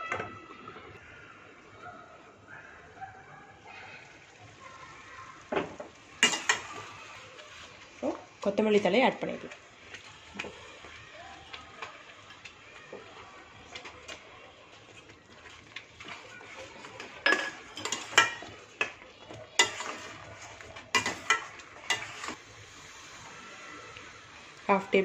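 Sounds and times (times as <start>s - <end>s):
metal spatula scraping pan: 6.2s - 7.8s, 16.0s - 18.7s, 19.6s - 25.0s.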